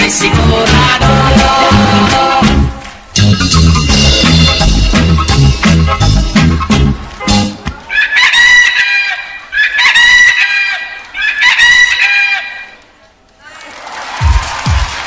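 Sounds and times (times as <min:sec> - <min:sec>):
rooster crowing: 0:07.9 - 0:12.7.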